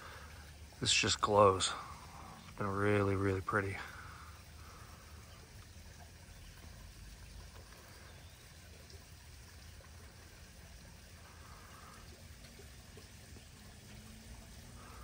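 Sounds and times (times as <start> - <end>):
trickle of running water: 0.0 - 15.0.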